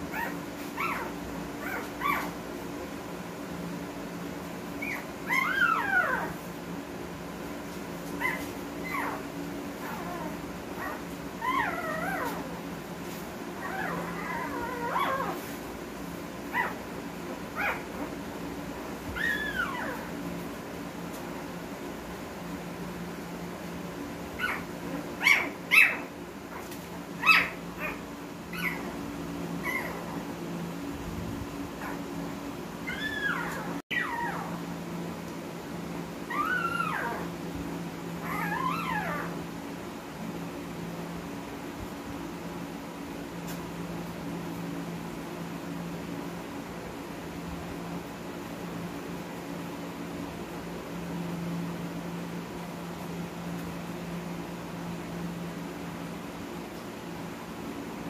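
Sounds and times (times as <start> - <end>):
steady low hum: 0.0 - 58.0
puppies whining and squealing: 0.1 - 2.4, 4.7 - 6.6, 8.0 - 15.6, 16.5 - 16.8, 17.5 - 18.1, 19.0 - 20.4, 24.4 - 30.7, 31.8 - 32.2, 32.8 - 34.7, 36.2 - 37.4, 38.1 - 39.5
puppy yelps: 0.1 - 2.4, 4.8 - 6.5, 8.2 - 12.6, 13.6 - 15.6, 16.5 - 16.8, 17.5 - 18.1, 19.1 - 20.2, 24.4 - 30.3, 31.8 - 32.1, 32.8 - 34.6, 36.3 - 37.3, 38.2 - 39.4.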